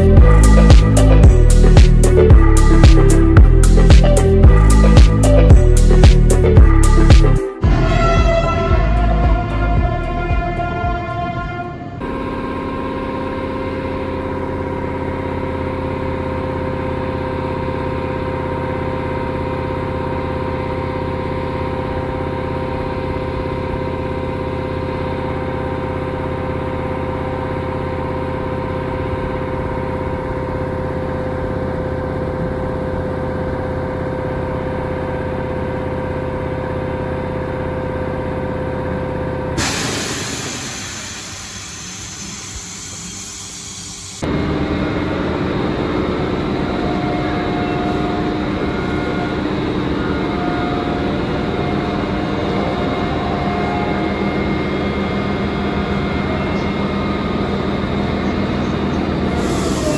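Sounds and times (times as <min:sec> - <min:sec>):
air hissing out: 0:39.6 - 0:44.2, 0:59.4 - 0:59.9
air compressor humming: 0:39.6 - 0:46.7, 0:57.2 - 0:59.9.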